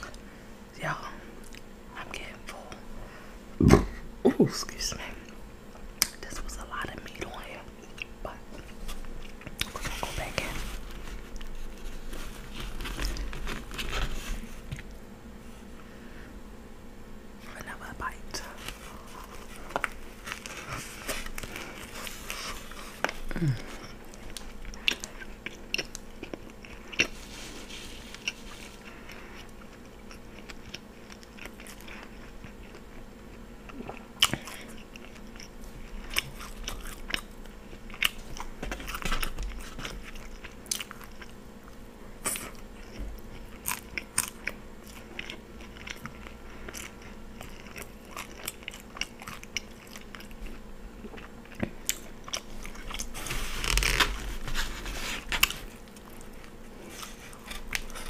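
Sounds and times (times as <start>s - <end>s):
close chewing of food: 5.0s - 15.1s, 18.4s - 58.0s.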